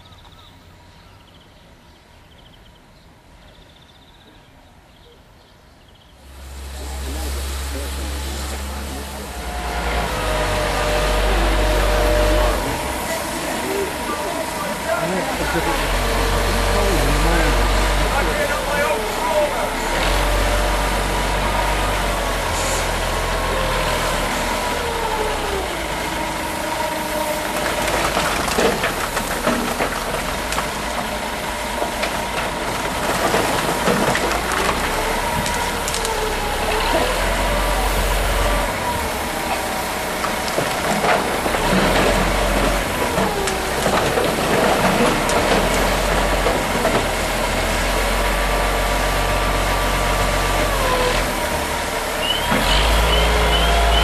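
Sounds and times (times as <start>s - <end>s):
front loader diesel engine: 6.2s - 54.0s
coal clattering: 27.3s - 37.7s, 39.5s - 47.6s.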